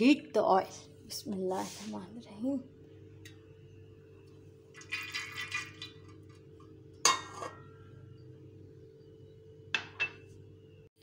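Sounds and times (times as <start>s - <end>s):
metal cookware clattering: 7.0s - 7.8s, 9.8s - 10.3s.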